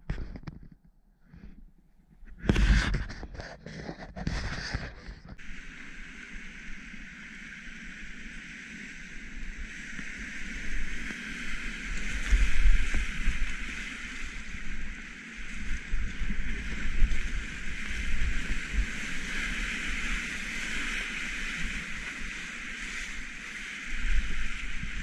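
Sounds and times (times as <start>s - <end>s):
wind buffeting on microphone: 2.2s - 5.5s, 10.0s - 25.0s.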